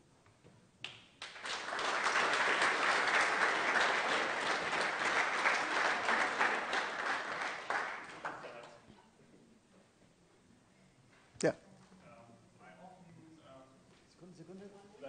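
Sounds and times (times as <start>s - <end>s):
audience applauding: 1.2s - 8.8s.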